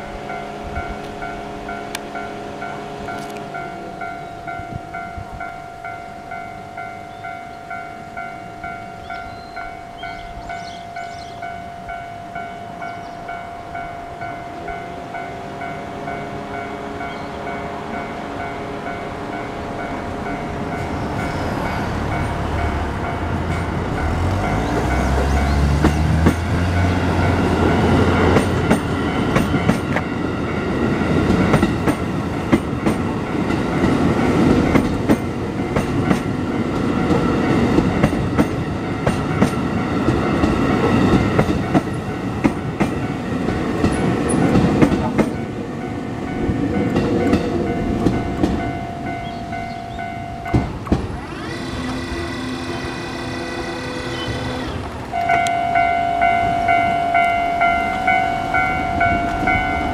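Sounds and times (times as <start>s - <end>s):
crossing warning bell ringing: 0.0s - 59.9s
hum of approaching train: 0.0s - 59.9s
train wheels clattering over rail joints: 21.1s - 45.6s, 46.2s - 55.6s.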